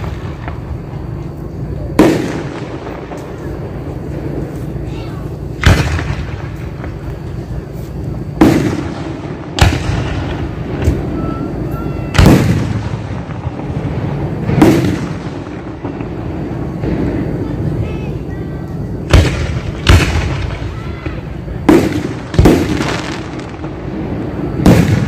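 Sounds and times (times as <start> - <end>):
firework shells booming: 0.0 - 18.3, 18.9 - 25.0.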